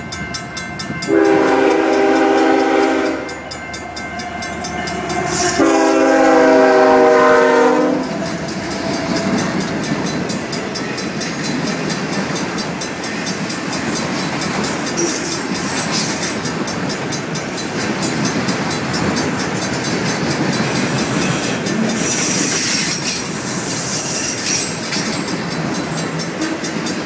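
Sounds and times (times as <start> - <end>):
freight cars rumbling on rails: 0.0 - 27.0
rhythmic wheel clicking: 8.0 - 27.0.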